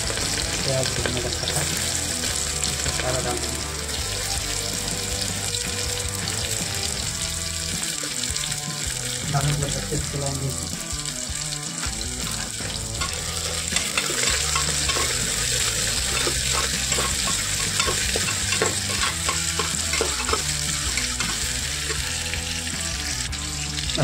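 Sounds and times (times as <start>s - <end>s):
onions sizzling in oil: 0.0s - 24.0s
metal ladle scraping pot: 12.2s - 22.2s.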